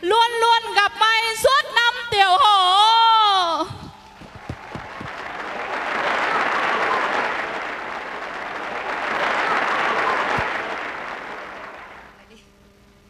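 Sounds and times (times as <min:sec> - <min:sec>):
soft low thumps: 0:03.7 - 0:05.2
audience applauding: 0:04.2 - 0:12.2.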